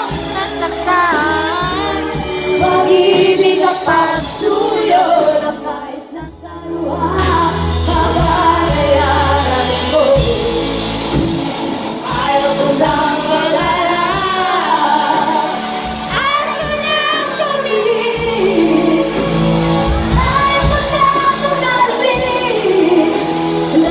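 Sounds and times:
women singing together: 0.0 - 11.0, 12.0 - 23.9
electric guitar: 0.0 - 23.9.

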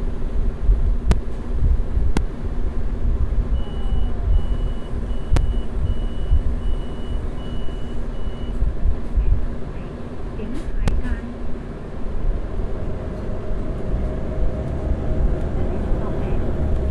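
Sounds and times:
bus diesel engine idling: 0.0 - 16.9
electronic warning beeps: 3.5 - 8.6.

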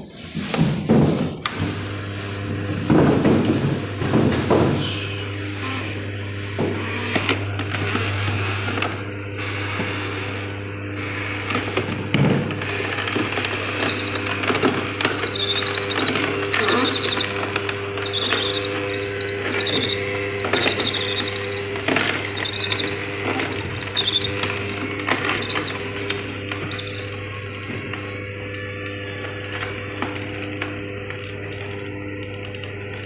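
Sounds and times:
juicer motor hum: 1.4 - 33.0
high squeaks of auger crushing: 12.5 - 27.4.

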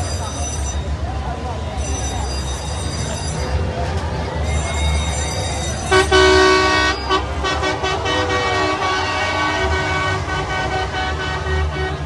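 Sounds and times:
car horn honking: 5.8 - 12.0.

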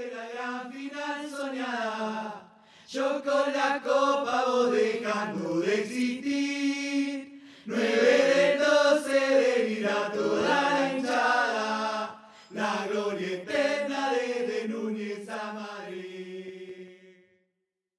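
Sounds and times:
chorus of voices chanting: 0.0 - 17.4.

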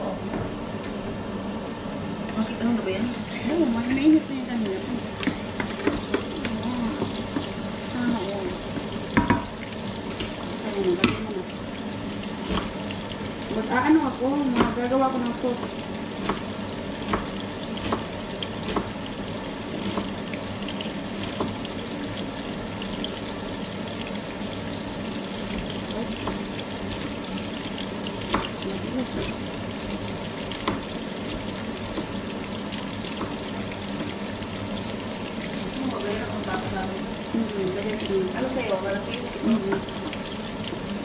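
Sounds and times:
food sizzling in a frying pan: 2.7 - 41.0
knife tapping on cutting board: 9.2 - 9.5, 14.5 - 14.8, 16.2 - 19.0, 21.4 - 21.6, 28.2 - 28.6, 30.6 - 30.9.

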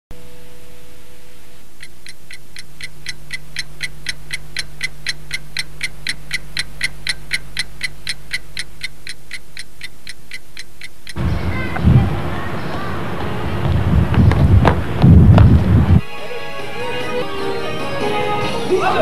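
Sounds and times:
mantel clock ticking: 1.7 - 11.2.

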